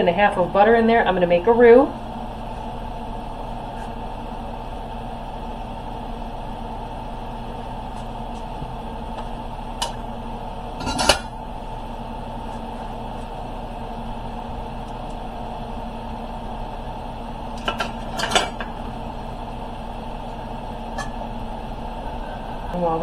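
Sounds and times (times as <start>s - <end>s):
low kitchen hum: 0.0s - 23.0s
cookware clattering: 10.8s - 11.3s.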